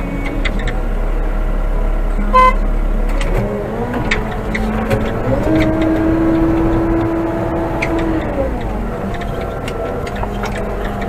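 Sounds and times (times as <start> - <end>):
diesel engine running: 0.0 - 11.0
short horn beep: 2.3 - 2.7.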